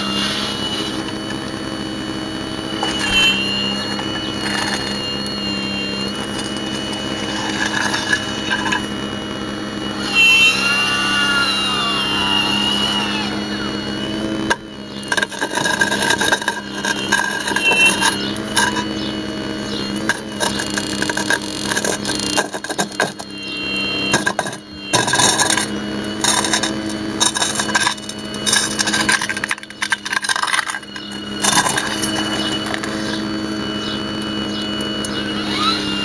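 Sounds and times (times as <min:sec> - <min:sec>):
hydraulic pump whine: 0:00.0 - 0:36.0
knocks and clatter of concrete: 0:02.8 - 0:09.0, 0:14.5 - 0:19.0, 0:20.0 - 0:23.4, 0:24.1 - 0:33.2.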